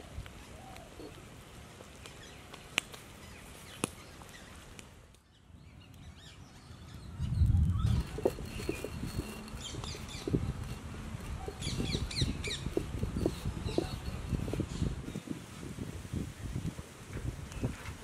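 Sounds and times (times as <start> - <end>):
pot boiling over fire: 0.0 - 5.3, 7.1 - 18.0
wood fire crackles: 0.0 - 18.0
birds chirping: 1.9 - 15.3
stone roller grinding seeds: 7.8 - 14.9.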